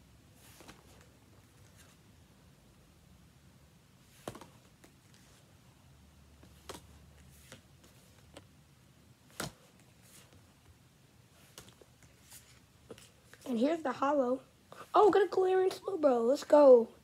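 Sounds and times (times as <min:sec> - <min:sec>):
cards clicking and snapping: 0:09.3 - 0:09.6.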